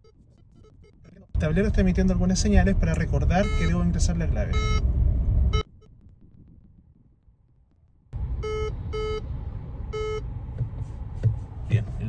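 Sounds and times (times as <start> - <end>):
car cabin hum: 0.1 - 12.0
dashboard warning beeps: 2.8 - 4.9, 5.5 - 6.0, 8.4 - 10.3.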